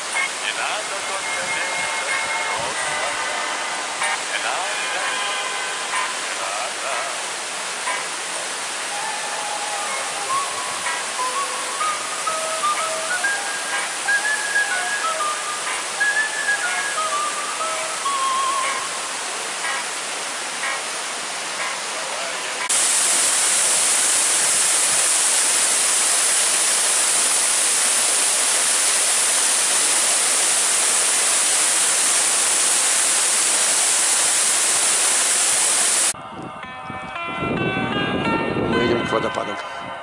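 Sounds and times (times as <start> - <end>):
waterfall rushing: 0.0 - 36.2.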